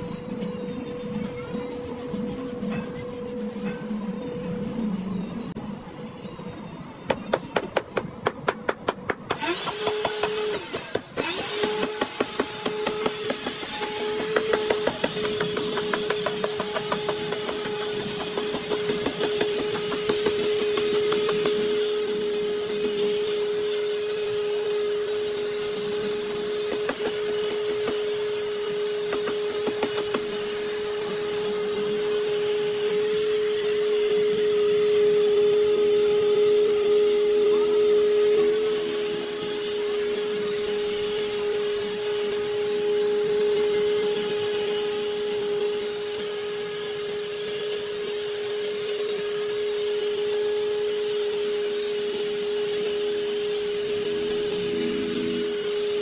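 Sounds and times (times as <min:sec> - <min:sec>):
machine humming: 0:00.0 - 0:56.0.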